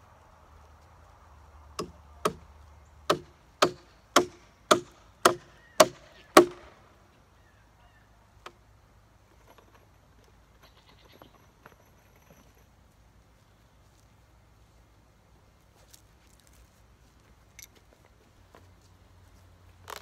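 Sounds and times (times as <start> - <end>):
hammer striking nail into wood: 1.8 - 2.4, 3.1 - 6.7.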